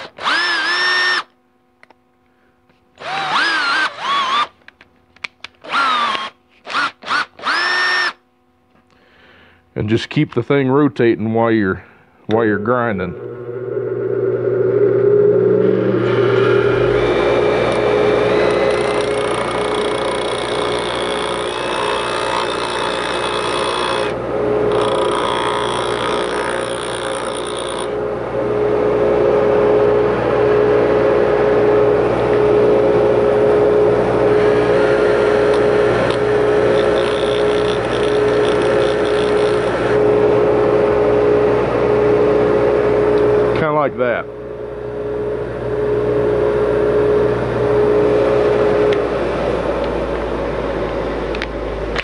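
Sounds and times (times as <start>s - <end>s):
bench grinder humming: 0.0s - 1.3s, 3.0s - 4.6s, 5.4s - 8.2s, 12.3s - 43.5s
cordless drill whine: 0.0s - 1.4s, 3.0s - 8.2s, 12.3s - 42.4s
metal pin grinding on wheel: 18.3s - 27.9s, 36.1s - 39.8s.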